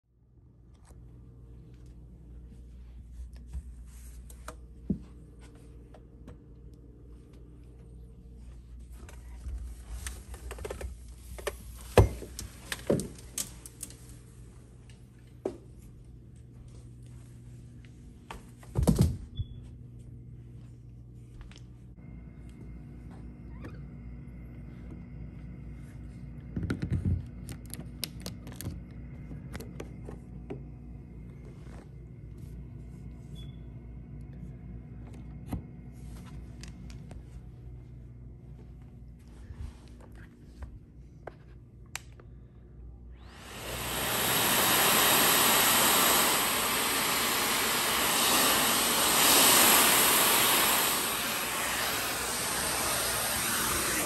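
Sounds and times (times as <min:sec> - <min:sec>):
faint steady hum: 0:00.1 - 0:54.0.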